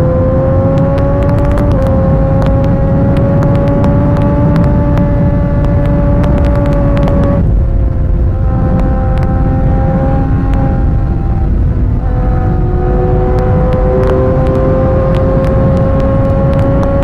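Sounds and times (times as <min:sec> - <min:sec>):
motorcycle engine at high revs: 0:00.0 - 0:17.0
wind rumble on microphone: 0:00.0 - 0:17.0
clicks: 0:00.7 - 0:07.3.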